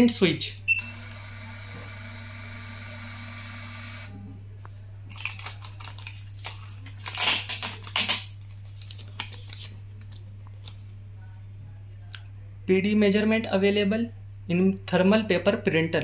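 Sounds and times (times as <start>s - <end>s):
thermal printer whirring: 0.7s - 4.1s
paper slip tearing: 5.1s - 10.9s.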